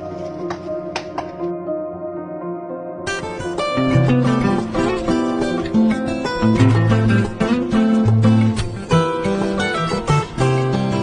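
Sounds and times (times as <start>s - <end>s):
plucked string music: 3.1s - 11.0s.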